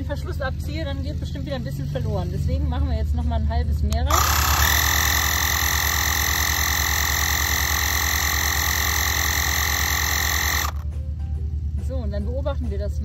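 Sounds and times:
tyre inflator compressor pulsing: 4.0s - 10.8s.

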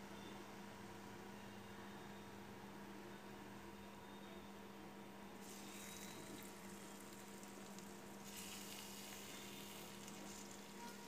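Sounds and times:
oil sizzling in a pan: 5.4s - 11.0s.

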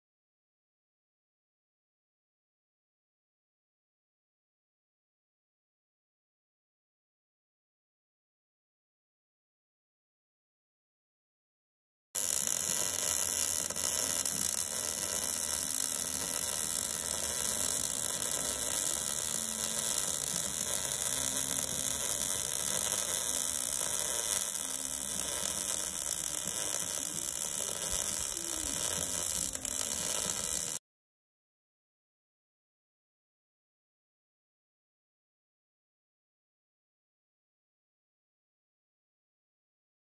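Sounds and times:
welding arc sizzling hiss: 12.2s - 30.8s.

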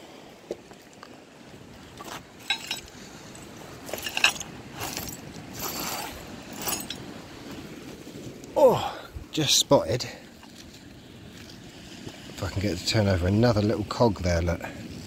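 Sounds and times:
glass pottery and stones clinking: 2.0s - 7.2s.

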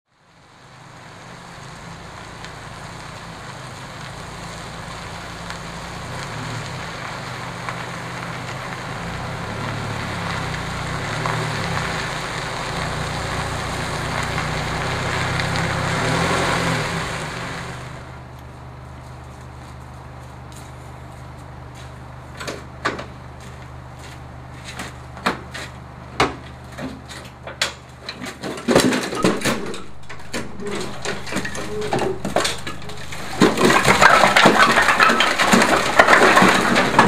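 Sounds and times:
vehicle engine hum: 0.1s - 37.0s.

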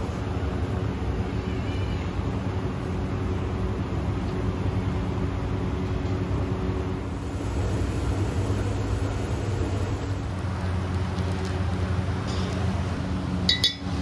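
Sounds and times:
low mechanical hum: 0.0s - 14.0s
even rushing noise: 7.0s - 10.6s.

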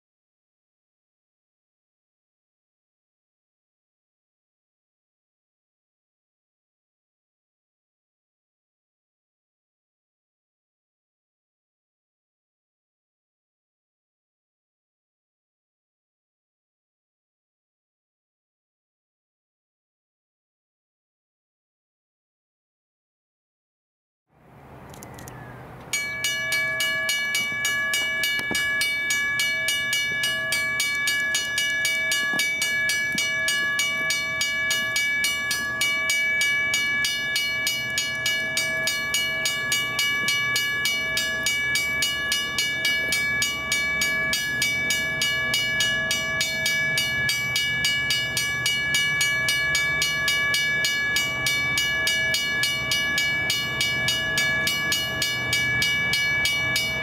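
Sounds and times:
crossing bell ringing: 25.2s - 57.0s.

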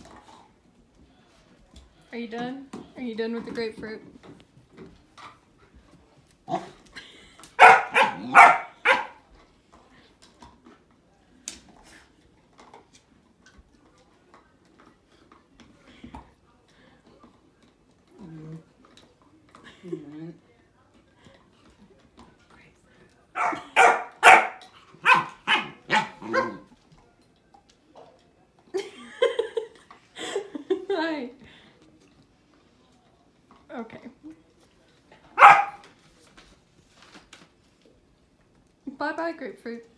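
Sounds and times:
puppy barking: 7.6s - 9.2s, 23.4s - 26.7s, 35.4s - 35.8s.

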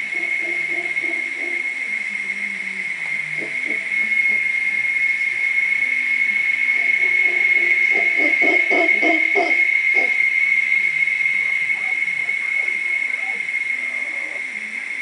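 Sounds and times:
howler monkeys grunting: 0.0s - 1.9s, 3.3s - 4.5s, 6.8s - 10.3s, 11.5s - 15.0s
cicadas droning: 0.0s - 15.0s.

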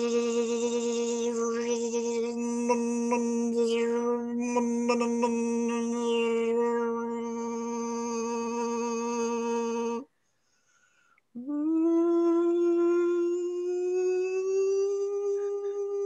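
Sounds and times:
person humming long notes: 0.0s - 10.0s, 11.4s - 16.0s.

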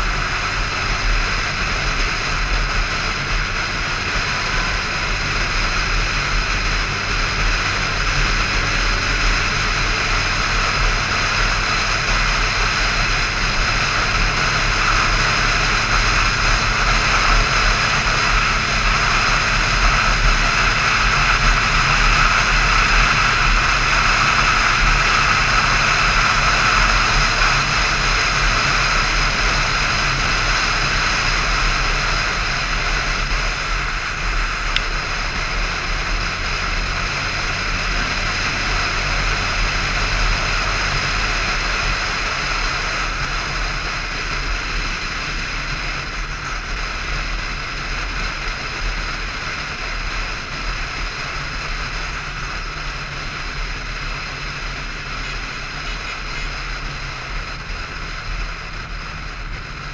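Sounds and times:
motorcycle engine drone: 0.0s - 59.9s.

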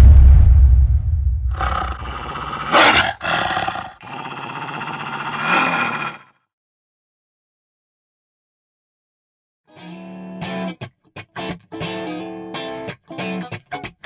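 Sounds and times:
deep fiery rumble: 0.0s - 3.2s
snarling animal roar: 1.5s - 6.3s.

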